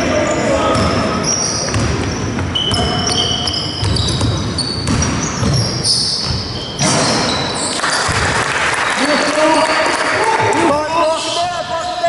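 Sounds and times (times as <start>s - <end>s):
sneakers squeaking on court: 0.0s - 9.0s
basketball bouncing: 0.7s - 8.5s
applause: 7.8s - 10.7s.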